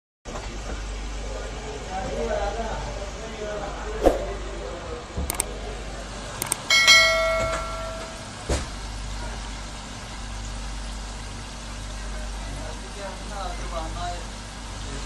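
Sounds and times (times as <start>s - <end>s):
quick clicks: 5.3s - 5.5s, 6.4s - 6.8s
bright bell chime: 6.7s - 8.4s.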